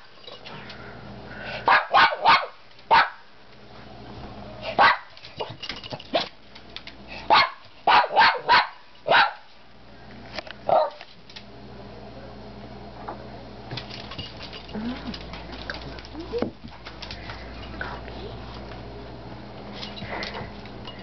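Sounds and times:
small dog barking: 1.6s - 3.2s, 4.8s - 5.1s, 7.3s - 9.5s, 10.7s - 11.0s.

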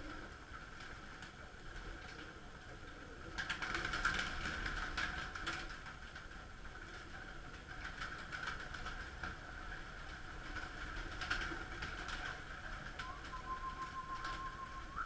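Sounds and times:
pigeon wings flapping: 0.0s - 15.0s
steady hum: 12.9s - 15.0s
thin steady tone: 13.0s - 15.0s.

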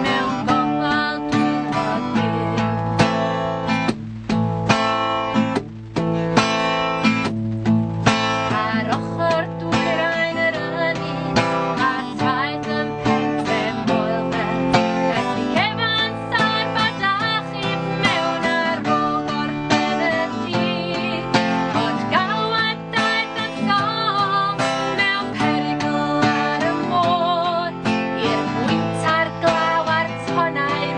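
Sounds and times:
woman singing: 0.0s - 3.4s, 8.0s - 30.9s
acoustic guitar: 0.0s - 30.9s.

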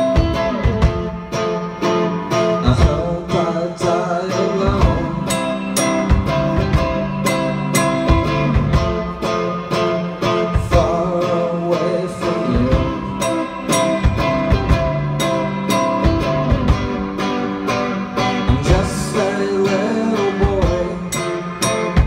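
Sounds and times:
drum kit playing: 0.0s - 22.0s
electric guitar: 0.0s - 22.0s
man singing: 2.2s - 6.7s, 10.5s - 14.5s, 18.2s - 22.0s.

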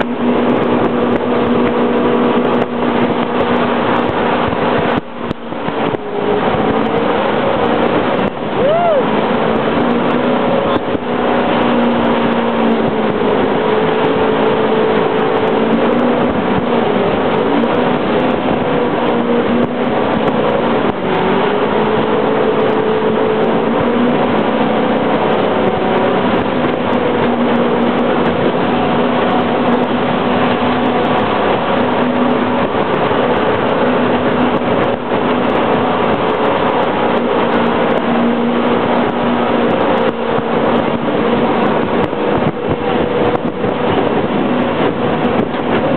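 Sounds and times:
boat engine droning: 0.0s - 45.9s
water rushing past hull: 0.0s - 45.9s.

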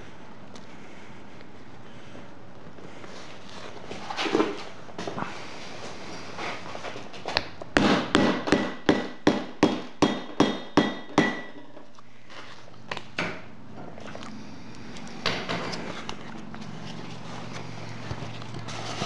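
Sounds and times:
hammer tapping metal tool: 8.1s - 11.8s.

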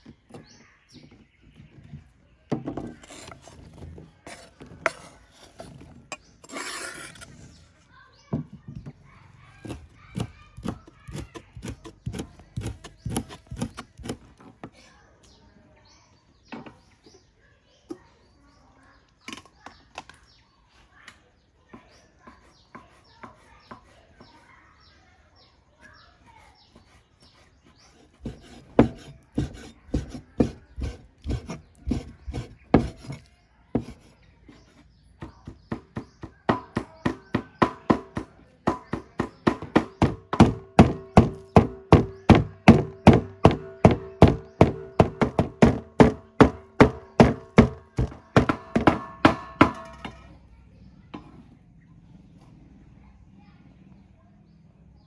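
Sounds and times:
cleaver chopping on wooden board: 9.6s - 14.2s, 28.1s - 34.0s, 35.2s - 50.1s.

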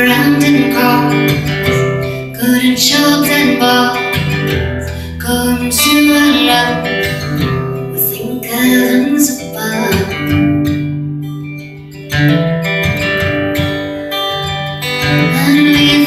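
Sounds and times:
woman singing wordless notes: 0.0s - 4.2s, 4.8s - 7.1s, 7.8s - 10.4s, 15.2s - 16.0s
acoustic guitar strumming: 0.0s - 16.0s.

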